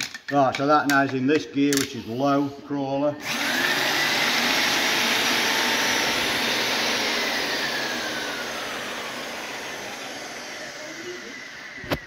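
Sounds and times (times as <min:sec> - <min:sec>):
electric drill whine: 0:03.2 - 0:12.0.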